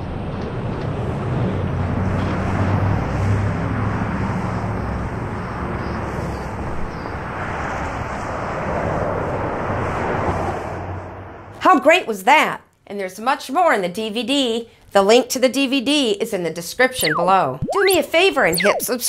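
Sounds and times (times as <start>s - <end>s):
road noise: 0.9s - 11.6s.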